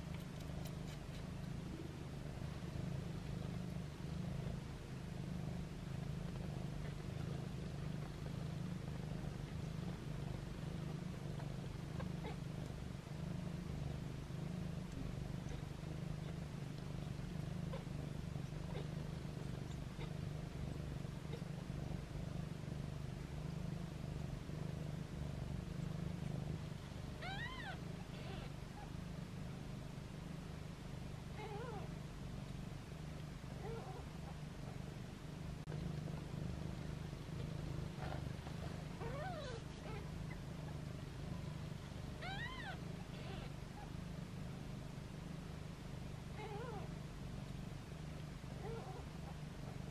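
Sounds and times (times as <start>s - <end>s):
faint ticks: 0.0s - 1.6s, 14.8s - 15.2s, 16.6s - 17.6s
cat purring: 0.0s - 49.9s
low steady rumble: 0.0s - 49.9s
kittens mewing: 42.2s - 43.6s.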